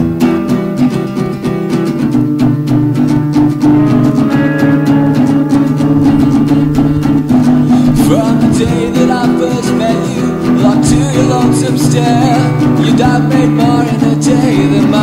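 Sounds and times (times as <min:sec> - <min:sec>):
indie rock band with guitars: 0:00.0 - 0:15.0.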